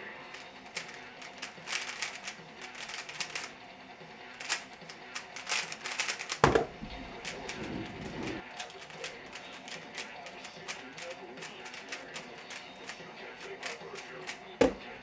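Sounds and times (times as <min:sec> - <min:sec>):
puzzle cube layers clicking: 0:00.8 - 0:03.5, 0:04.4 - 0:06.4, 0:07.2 - 0:14.4.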